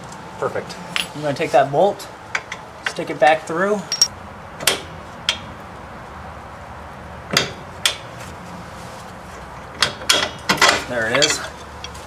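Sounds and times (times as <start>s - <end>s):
sharp metal clinks: 3.9s - 4.1s.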